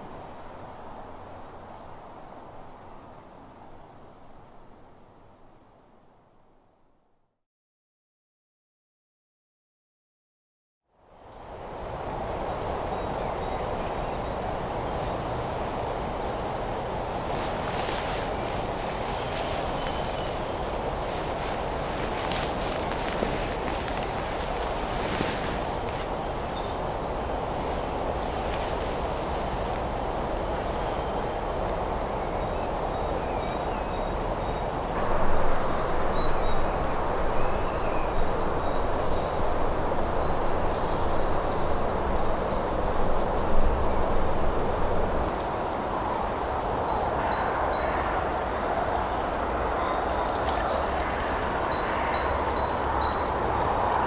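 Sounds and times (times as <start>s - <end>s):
songbirds singing: 11.2s - 44.0s, 45.5s - 54.0s
small stream running: 11.2s - 54.0s.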